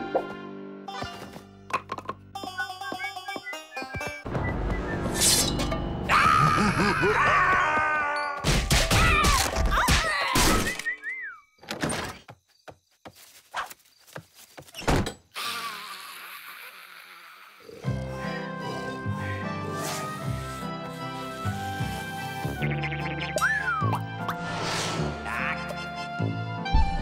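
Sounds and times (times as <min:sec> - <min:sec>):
background music: 0:00.0 - 0:09.4, 0:17.8 - 0:27.0
cartoon yelps and squeals: 0:06.1 - 0:10.7.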